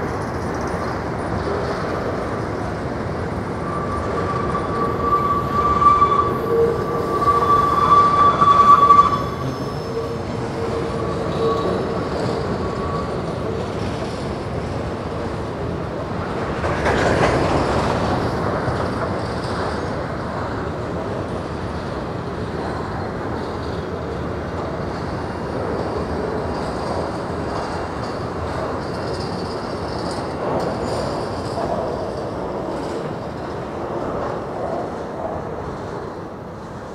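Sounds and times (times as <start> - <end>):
freight train wheels rumbling: 0.0 - 36.9
train wheel squealing: 0.0 - 36.9.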